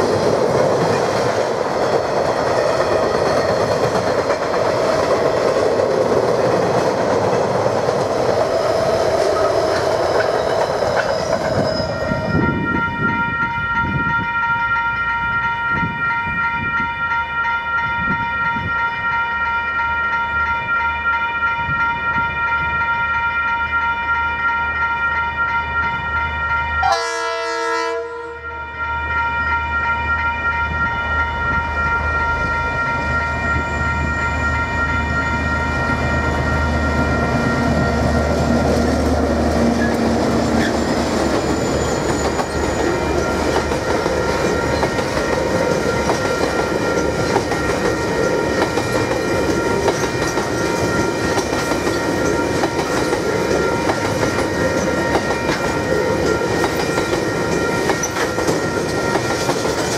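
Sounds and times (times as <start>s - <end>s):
train wheels rolling over bridge: 0.0s - 12.6s, 35.9s - 59.9s
train horn blast: 11.0s - 38.9s
diesel locomotive rumble: 35.8s - 59.9s.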